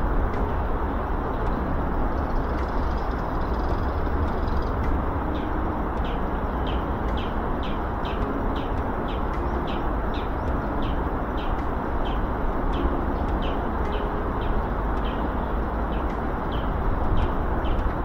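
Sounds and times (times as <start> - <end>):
steady rushing noise: 0.0 - 18.0.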